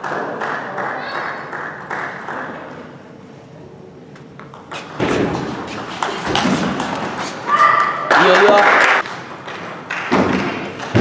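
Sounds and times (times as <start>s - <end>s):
ping pong ball clicks and knocks: 4.4s - 7.2s
players' feet thudding: 4.5s - 7.5s.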